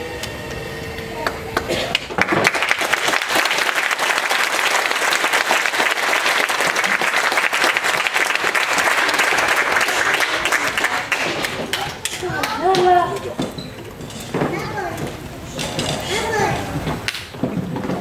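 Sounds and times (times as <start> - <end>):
audience applauding: 1.2 - 12.6.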